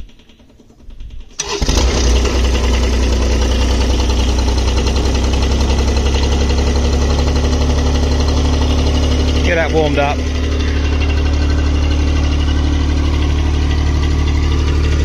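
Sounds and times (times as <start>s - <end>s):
diesel engine starting and idling: 0.0s - 15.0s.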